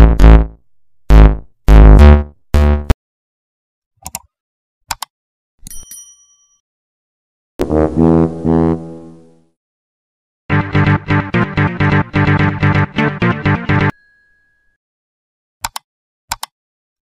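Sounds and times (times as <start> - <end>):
bass-heavy music hits: 0.0 - 0.5, 1.1 - 3.0, 10.5 - 13.9.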